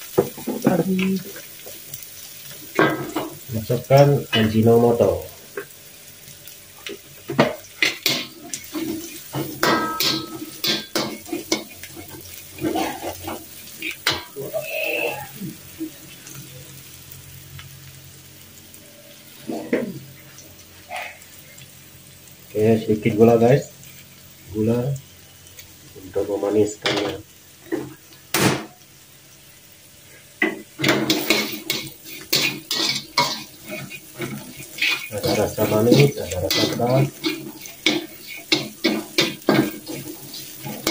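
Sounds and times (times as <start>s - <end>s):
food stir-frying: 0.0s - 40.9s
spatula scraping a wok: 7.8s - 15.4s, 30.4s - 40.9s.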